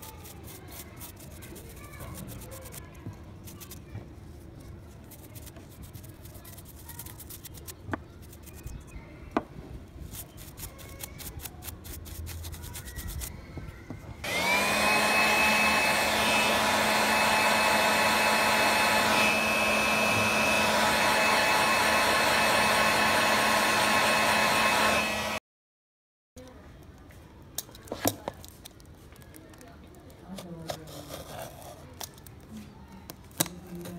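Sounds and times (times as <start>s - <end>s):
brush scrubbing circuit board: 0.0s - 2.8s, 5.1s - 8.8s
hot-air blower whining: 14.2s - 25.4s.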